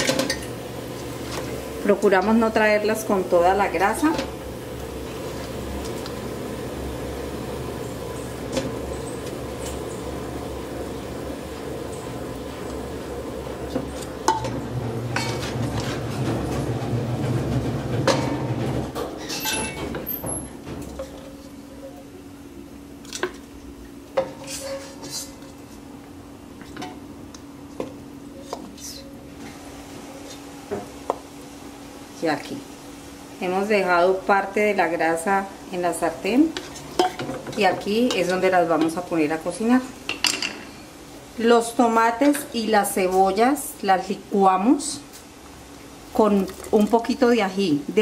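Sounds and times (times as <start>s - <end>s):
wooden spoon knocking on pots: 13.7s - 16.7s, 36.5s - 39.1s.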